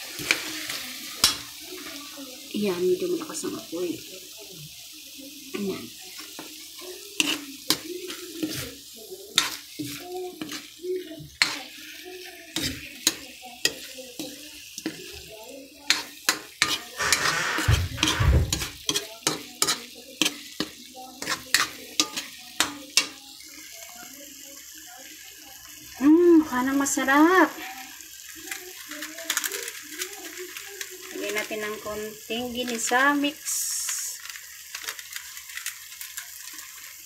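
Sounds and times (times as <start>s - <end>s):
food sizzling: 0.0s - 37.0s
utensil scraping and knocking pan: 16.6s - 19.0s.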